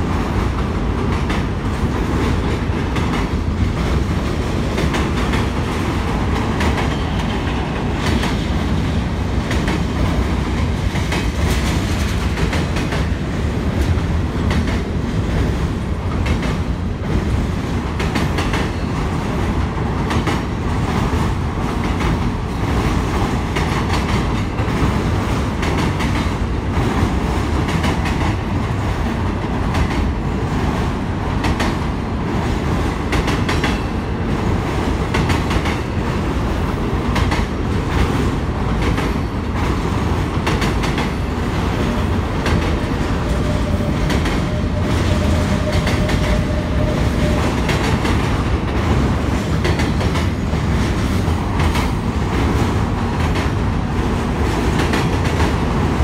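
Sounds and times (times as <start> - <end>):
freight train rumbling on bridge: 0.0 - 56.0.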